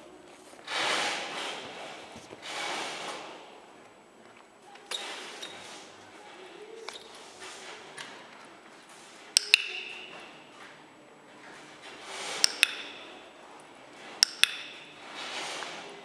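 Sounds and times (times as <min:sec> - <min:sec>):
clicker clicking: 0:09.4 - 0:10.0, 0:12.4 - 0:13.0, 0:14.2 - 0:14.7.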